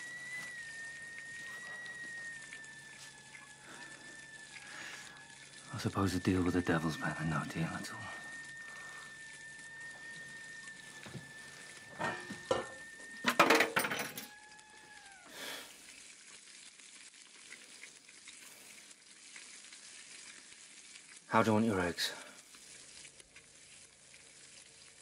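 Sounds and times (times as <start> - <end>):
faint high whine: 0.0 - 16.3
dishes clinking and clattering: 12.0 - 14.3.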